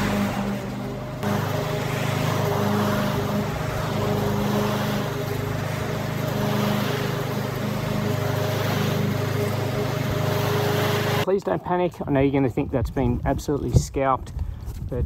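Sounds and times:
lawn mower running: 0.0 - 11.3.

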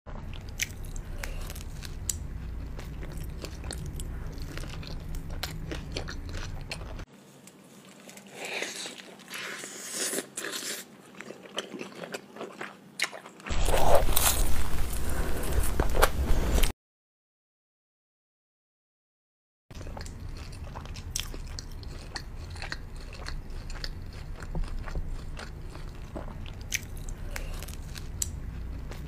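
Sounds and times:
chewing flatbread with crunches: 0.1 - 7.1, 7.8 - 16.7, 19.7 - 29.0
low hum: 0.1 - 7.1, 13.5 - 16.7.

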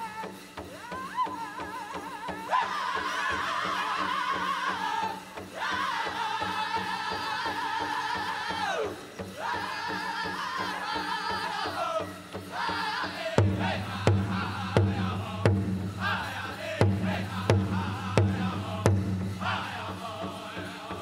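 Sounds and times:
men singing in unison: 0.0 - 21.0
big drum strikes: 12.4 - 21.0.

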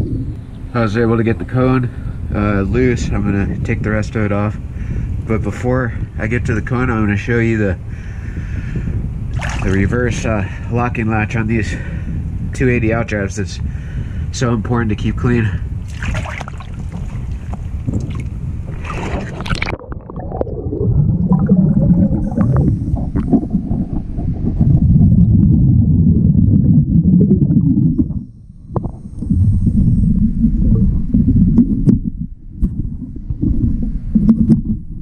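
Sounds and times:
underwater rumbling and gurgling: 0.0 - 7.3, 7.9 - 12.9, 15.7 - 35.0
water splashing at the surface: 9.3 - 9.9, 15.8 - 24.7.

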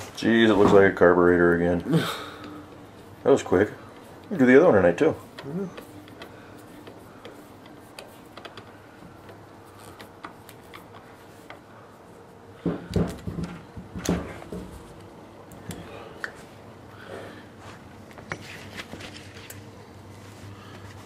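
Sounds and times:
faint clicks and taps: 5.2 - 11.7.

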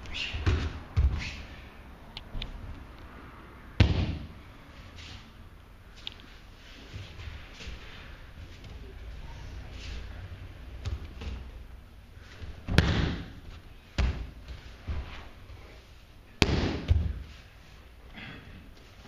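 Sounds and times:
bodies hitting a padded mat: 3.8 - 4.4, 12.4 - 15.4, 16.4 - 17.4.

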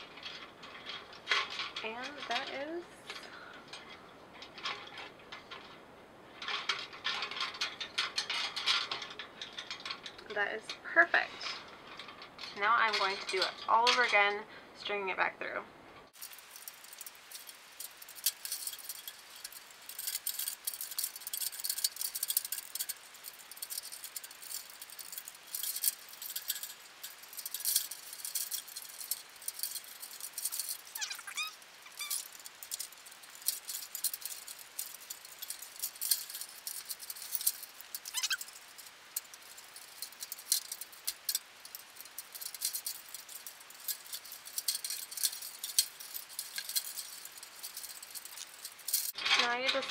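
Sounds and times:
plastic bulbs clicking on metal cage: 16.2 - 49.2.

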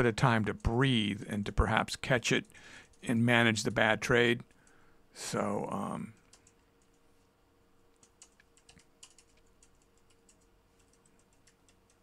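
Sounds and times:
faint steady hum: 0.0 - 12.0
computer keys clicking: 6.1 - 7.0, 7.9 - 12.0.

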